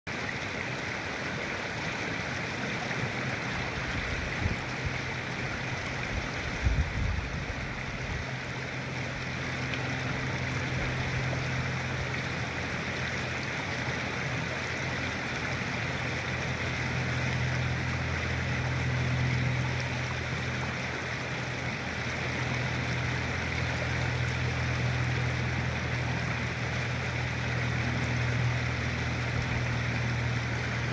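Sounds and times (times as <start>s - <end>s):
creek water rushing over rocks: 0.1s - 30.9s
low steady hum: 0.1s - 30.9s.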